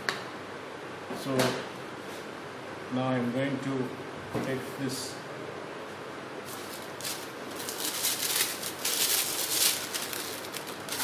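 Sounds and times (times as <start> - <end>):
plastic rustling and scraping: 6.5 - 11.0.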